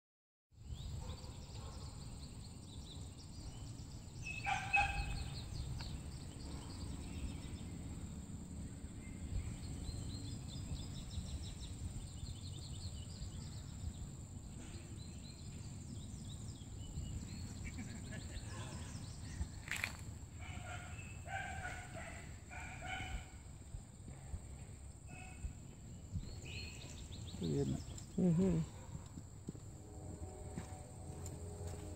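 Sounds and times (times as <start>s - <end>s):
loud bird call: 4.2s - 5.5s.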